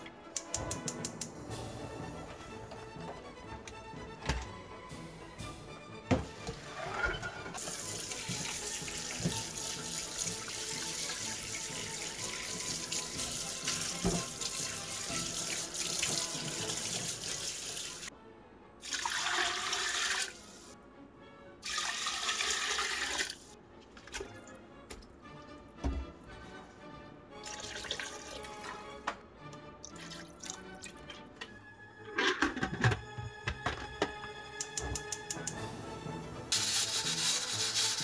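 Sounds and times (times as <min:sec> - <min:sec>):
water running from tap into sink: 0:07.6 - 0:18.1, 0:18.8 - 0:20.6, 0:21.6 - 0:23.4, 0:27.5 - 0:28.7.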